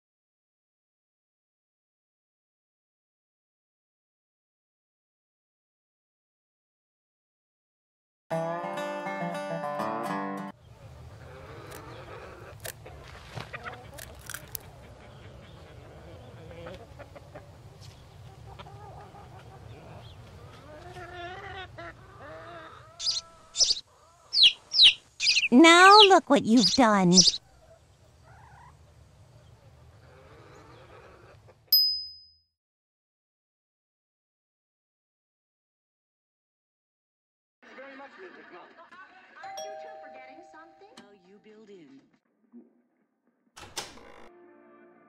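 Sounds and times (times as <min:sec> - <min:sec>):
eggshell cracking: 0:14.0 - 0:14.6
cartoon hen squawking: 0:21.1 - 0:27.4
cartoon soundtrack: 0:25.5 - 0:27.4.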